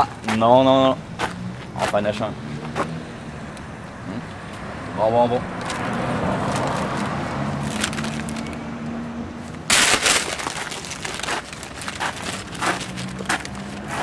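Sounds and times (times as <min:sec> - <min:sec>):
paper bag crinkling: 0:07.6 - 0:08.5, 0:09.7 - 0:13.8.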